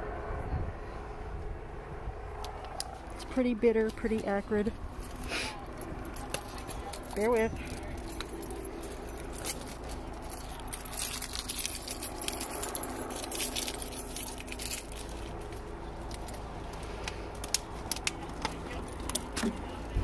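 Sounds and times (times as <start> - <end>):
low background hum: 0.0 - 20.0
metallic jingling: 4.9 - 16.7.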